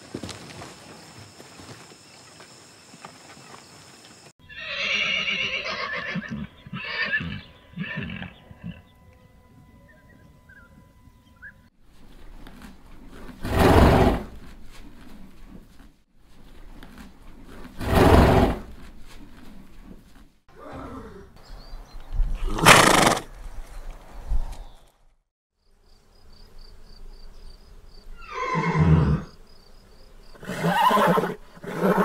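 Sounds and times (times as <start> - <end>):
horses neighing: 4.4 - 8.8, 22.4 - 23.3, 28.2 - 29.3, 30.4 - 32.0.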